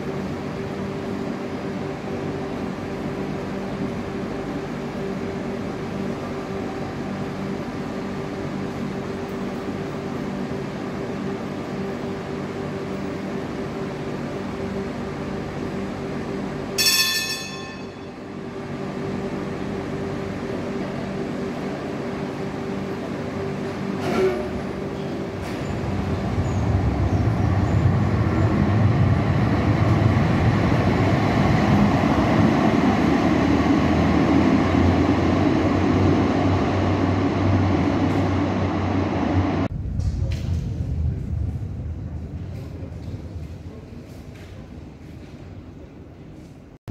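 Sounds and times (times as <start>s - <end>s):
tram equipment humming: 0.0s - 46.9s
tram pulling away rumbling: 0.0s - 46.9s
short ringing chime: 16.8s - 18.2s.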